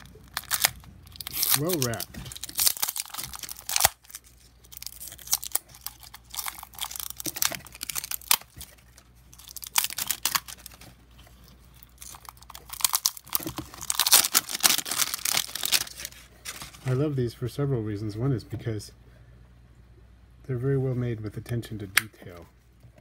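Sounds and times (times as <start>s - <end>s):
plastic film crinkling and tearing: 0.0s - 17.0s.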